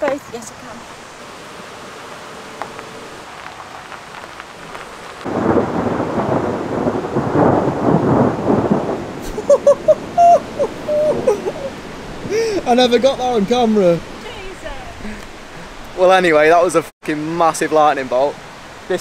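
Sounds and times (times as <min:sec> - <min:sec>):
steady rain: 0:00.0 - 0:19.0
thunder crackling and rumbling: 0:03.3 - 0:14.1.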